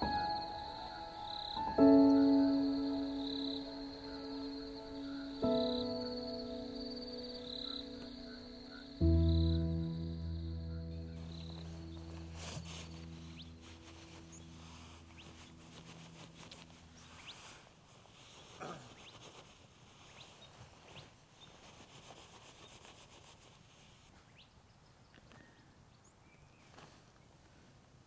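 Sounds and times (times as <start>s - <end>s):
faint bird chirps: 0.0s - 17.5s
soft sustained music tones: 0.0s - 17.8s.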